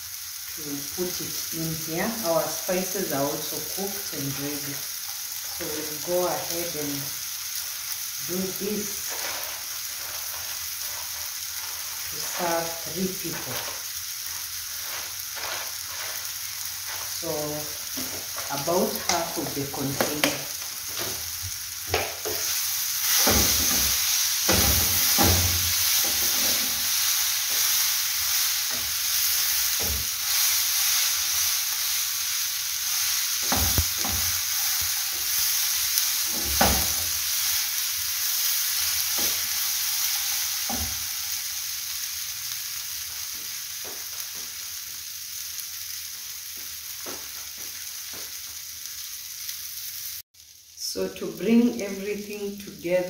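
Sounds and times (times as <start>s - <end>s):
fish sizzling in a pan: 0.0s - 53.0s
wooden spoon scraping a pan: 8.7s - 21.3s, 22.1s - 32.1s.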